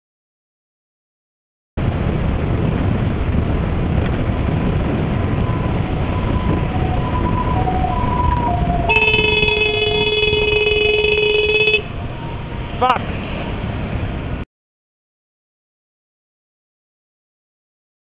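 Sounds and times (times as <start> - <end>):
car road and engine noise: 1.8 - 14.5
faint tones stepping in pitch: 5.3 - 10.2
car horn blaring: 5.9 - 12.0.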